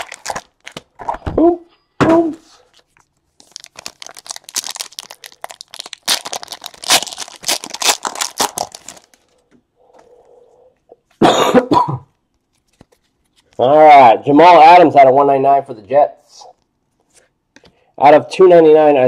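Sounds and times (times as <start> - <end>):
foil wrapper crinkling and ripping: 0.0 - 0.9, 2.6 - 9.4.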